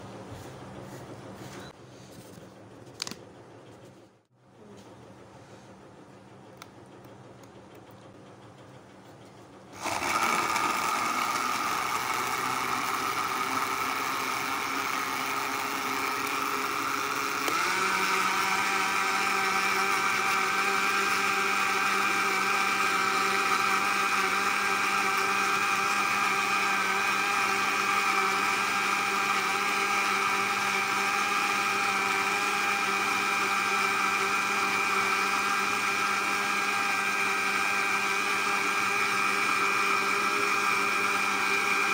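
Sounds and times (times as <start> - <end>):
blender motor whining: 9.8 - 41.9.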